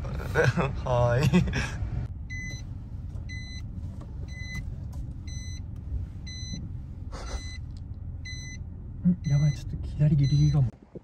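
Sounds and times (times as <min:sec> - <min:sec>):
car engine rumble: 0:00.0 - 0:11.0
road noise: 0:00.0 - 0:11.0
short high car alert beeps: 0:08.2 - 0:08.6.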